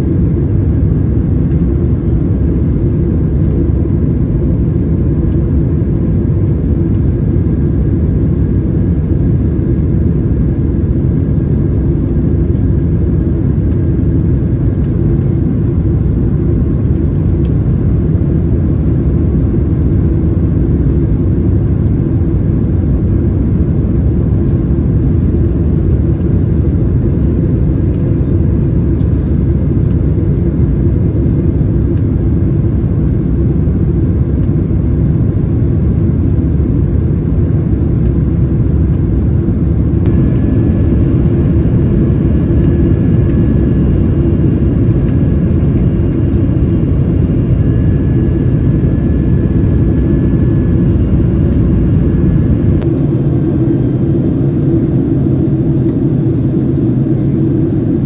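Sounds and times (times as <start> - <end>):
cabin engine and airflow rumble: 0.0 - 58.0
faint high whine: 36.0 - 58.0.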